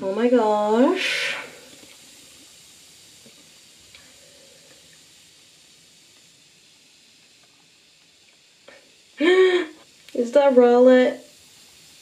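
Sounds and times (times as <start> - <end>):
bath bomb fizzing: 0.0 - 12.0.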